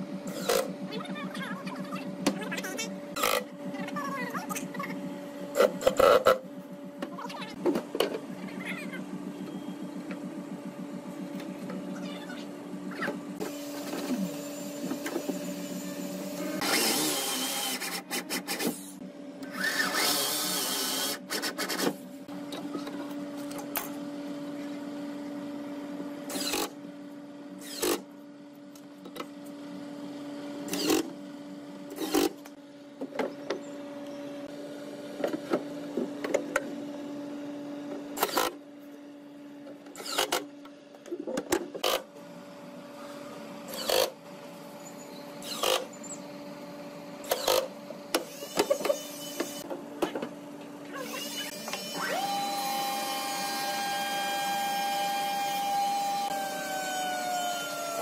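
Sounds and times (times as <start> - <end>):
steady mechanical hum: 0.0 - 58.0
cordless drill driving: 13.5 - 18.1, 18.8 - 21.8, 26.3 - 26.8, 27.6 - 28.0, 30.7 - 31.1, 51.1 - 58.0.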